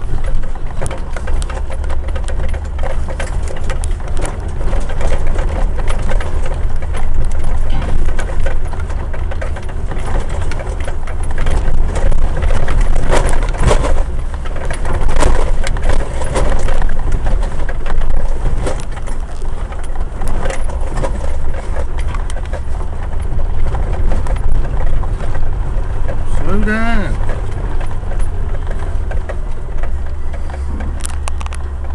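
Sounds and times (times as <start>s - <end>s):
body rattles and knocks: 0.0s - 31.9s
vehicle low rumble: 0.0s - 31.9s.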